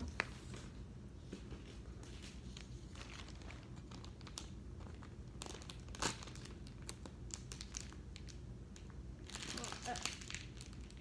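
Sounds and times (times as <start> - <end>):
plastic packaging crinkling and tearing: 2.5 - 11.0.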